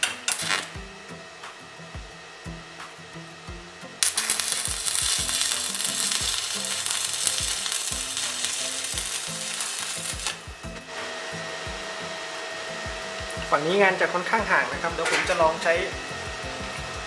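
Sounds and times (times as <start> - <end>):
welding arc crackling: 0.0 - 0.9, 4.0 - 11.9.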